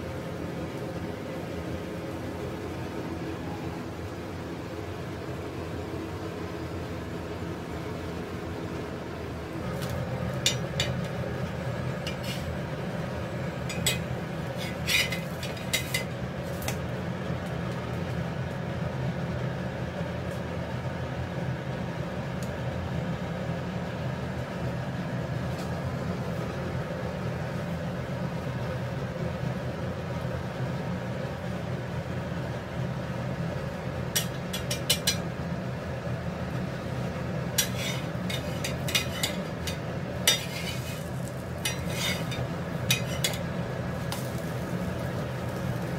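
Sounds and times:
steady low hum: 0.0s - 45.9s
metal spatula scraping frying pan: 12.1s - 12.6s, 13.7s - 16.1s, 37.6s - 43.4s.

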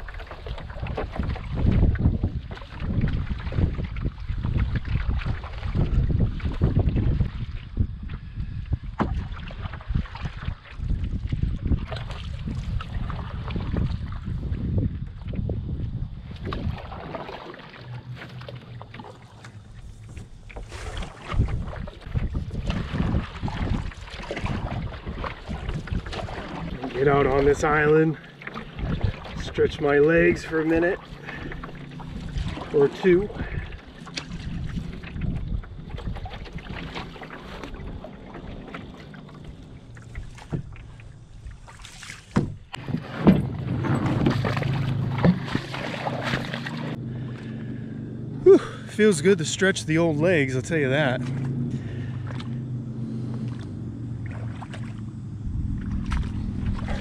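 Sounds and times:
wind buffeting the microphone: 0.0s - 17.2s, 19.6s - 41.7s, 52.8s - 57.0s
small knocks and splashes: 0.0s - 47.6s, 50.3s - 55.1s, 55.7s - 57.0s
water slapping against canoe hull: 0.0s - 47.8s, 48.9s - 57.0s.

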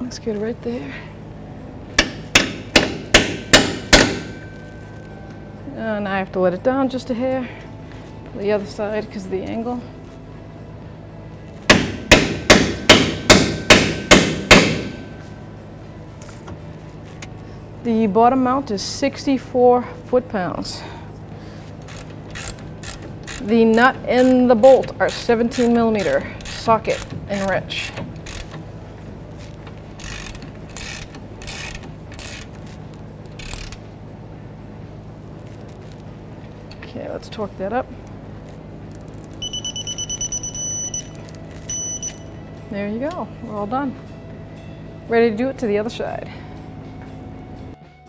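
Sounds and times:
hammer striking metal bolt: 2.0s - 4.5s, 11.7s - 15.0s
hand ratchet clicking: 21.8s - 28.6s, 30.0s - 33.8s.

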